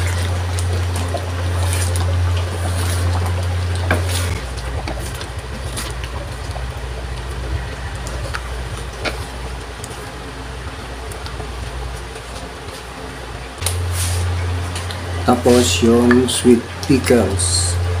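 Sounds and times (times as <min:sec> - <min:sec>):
steady low hum: 0:00.0 - 0:18.0
stew simmering: 0:00.0 - 0:18.0
wooden spatula scraping a wok: 0:13.8 - 0:14.4.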